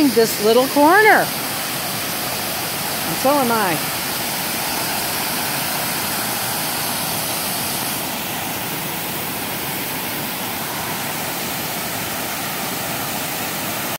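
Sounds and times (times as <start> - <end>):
waterfall rushing: 0.0 - 13.9.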